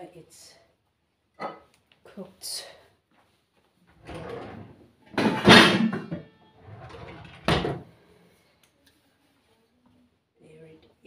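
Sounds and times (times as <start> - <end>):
drawer opening and shutting: 4.0 - 7.9.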